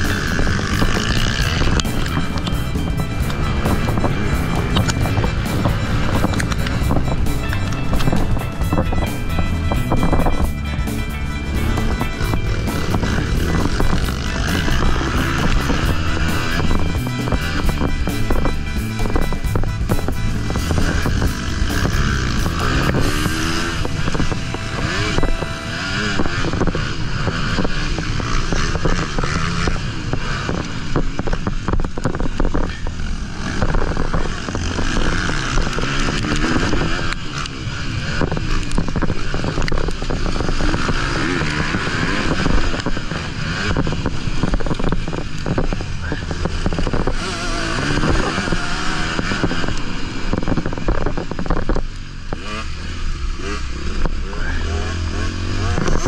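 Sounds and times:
motocross bike engine revving: 0.0 - 56.0
wind on microphone: 0.0 - 56.0.

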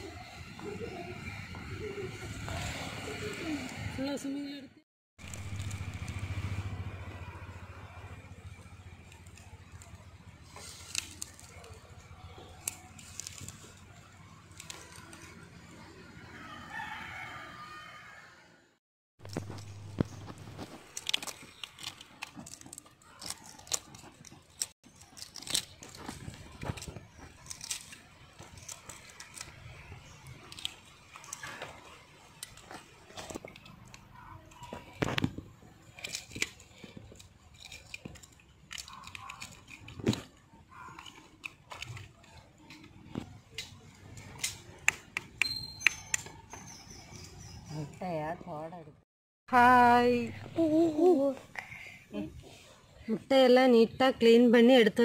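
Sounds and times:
egg shells crackling while peeled: 8.7 - 15.6, 19.2 - 44.9
rooster crowing: 16.2 - 18.6.

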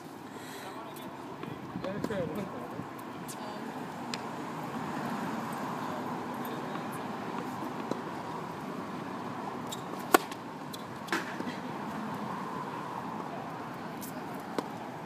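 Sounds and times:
racket striking ball: 9.7 - 11.5.

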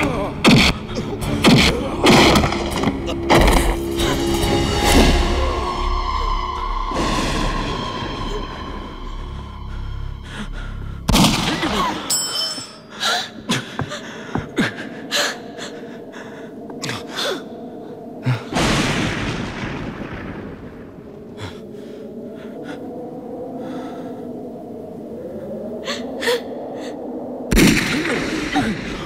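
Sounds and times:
low steady drone: 0.0 - 12.1
heavy crash: 1.4 - 10.1
gasping breaths: 6.1 - 11.1, 12.8 - 18.6, 21.3 - 24.6, 25.2 - 27.1.

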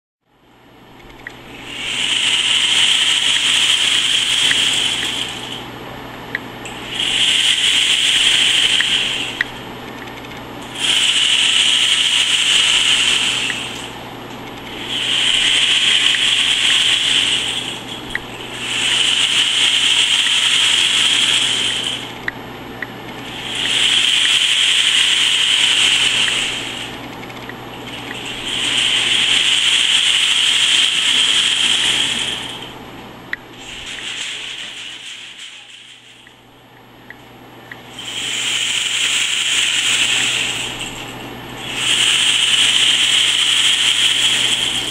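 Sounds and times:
small clicks: 1.0 - 1.4
rain stick hissing patter: 1.0 - 5.7, 6.7 - 22.2, 23.1 - 32.5, 33.6 - 36.4, 38.0 - 44.9.

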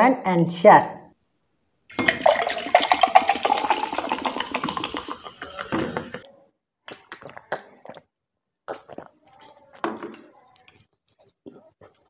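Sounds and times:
soft drink pouring and fizzing: 1.9 - 6.2.

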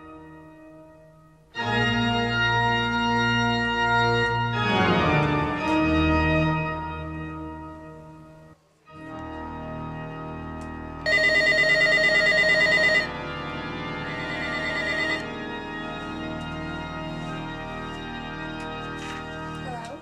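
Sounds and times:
organ chords: 0.0 - 19.6
electronic telephone ringing: 11.1 - 13.1, 14.0 - 15.3.

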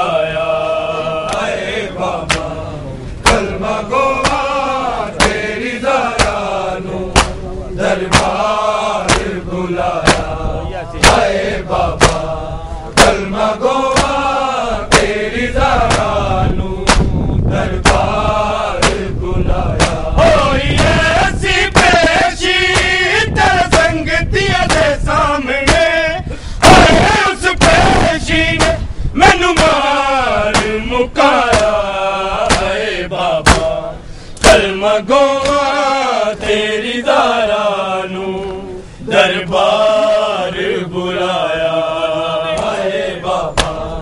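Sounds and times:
men chanting a lament in unison: 0.0 - 44.0
hands slapping chests: 2.2 - 2.5, 3.2 - 3.5, 4.2 - 4.5, 5.2 - 5.4, 6.2 - 6.4, 7.1 - 7.4, 8.1 - 8.4, 9.1 - 9.4, 10.0 - 10.3, 12.0 - 12.3, 14.0 - 14.2, 15.9 - 16.1, 16.9 - 17.1, 17.8 - 18.0, 18.8 - 19.0, 19.8 - 20.0, 30.5 - 30.7, 31.5 - 31.8, 32.4 - 32.7, 33.4 - 33.7, 35.4 - 35.7, 43.6 - 43.8.

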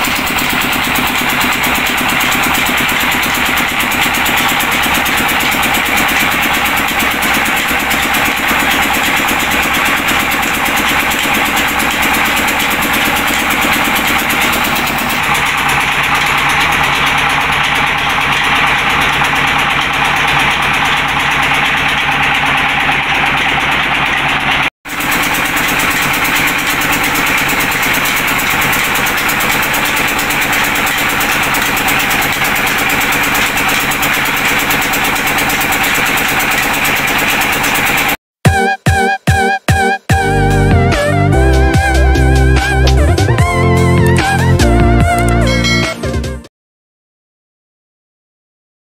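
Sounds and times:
diesel engine running: 0.0 - 38.2, 40.2 - 46.0
stone mill grinding: 0.0 - 38.2.

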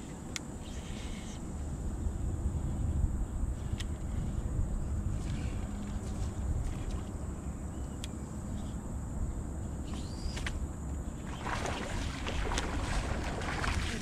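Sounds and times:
wind rumble on microphone: 0.0 - 14.0
water lapping at boat hull: 11.2 - 14.0.

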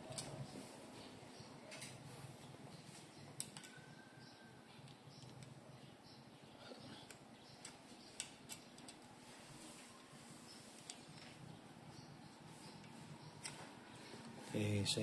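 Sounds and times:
faint clicks of handled bolt: 3.4 - 3.8.

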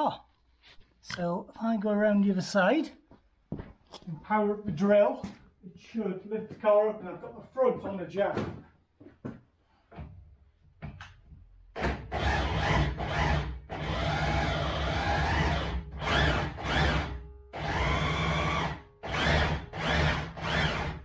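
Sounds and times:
power drill running: 11.8 - 21.0.

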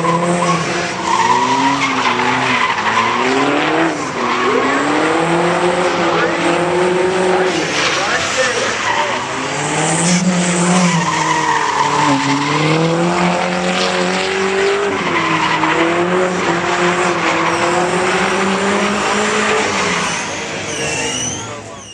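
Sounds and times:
car engine at high revs: 0.0 - 21.2
tyres squealing: 18.8 - 21.9.

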